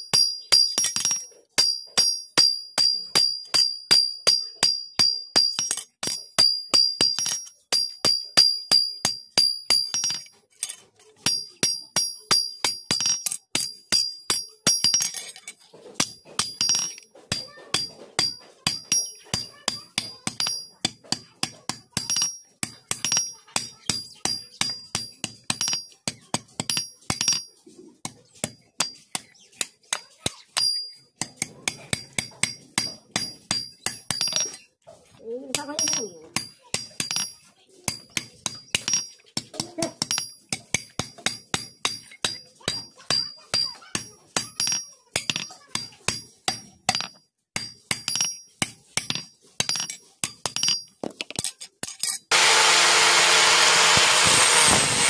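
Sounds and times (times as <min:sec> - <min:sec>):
hammer striking steel on anvil: 0:00.0 - 0:15.4, 0:16.0 - 0:27.5, 0:35.5 - 0:50.9, 0:51.8 - 0:55.0.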